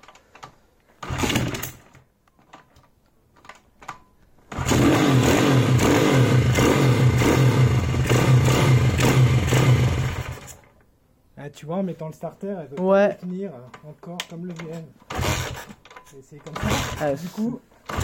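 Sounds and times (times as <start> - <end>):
motorbike engine starting and running: 1.0 - 2.0, 4.5 - 10.8, 15.0 - 18.0.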